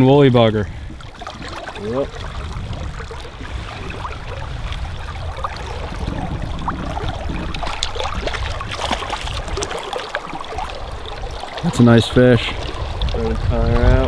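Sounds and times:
creek water flowing: 0.0 - 14.0
low rumble: 0.5 - 9.7.

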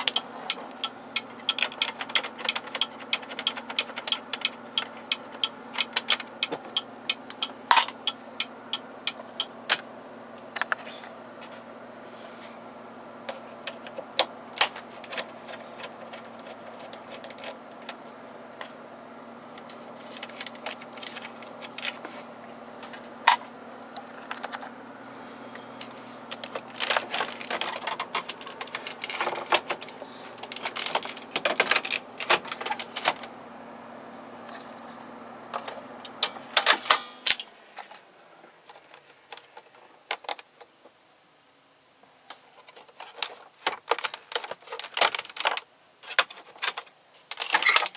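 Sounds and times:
steady low hum: 0.0 - 38.7.

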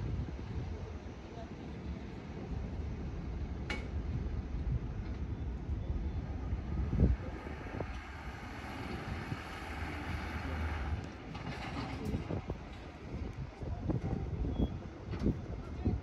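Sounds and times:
wind rumbling on microphone: 0.0 - 16.0
jet airliner engine rushing: 6.4 - 12.5.

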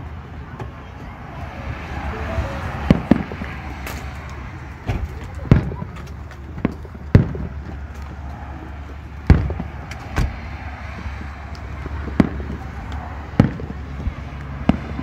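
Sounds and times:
fireworks booms: 2.9 - 3.5, 6.6 - 7.6, 9.3 - 10.4, 11.8 - 12.7, 13.4 - 13.8
faint fireworks pops: 4.9 - 8.2, 9.2 - 15.0.

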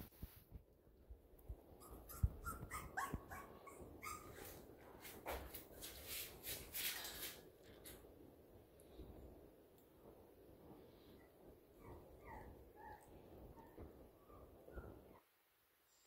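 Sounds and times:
puppy whimpering and yipping: 1.8 - 4.6, 11.8 - 15.2
rustling: 1.9 - 8.1.

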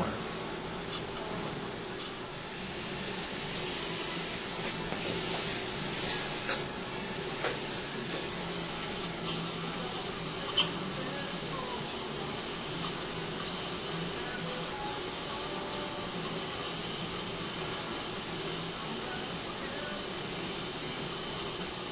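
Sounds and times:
dental suction hissing: 3.3 - 6.7, 7.4 - 17.5.

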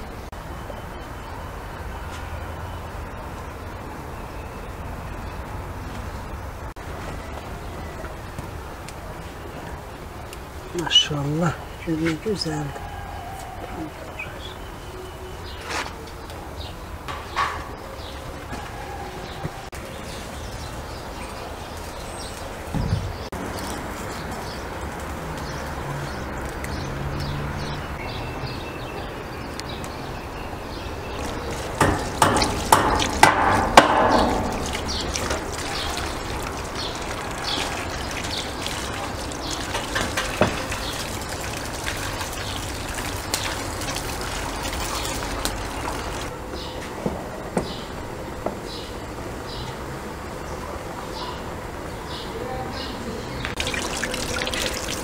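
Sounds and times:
running water pouring: 31.1 - 46.3, 53.5 - 55.0
hands rubbing and rinsing vegetables: 31.2 - 46.3, 53.5 - 55.0.

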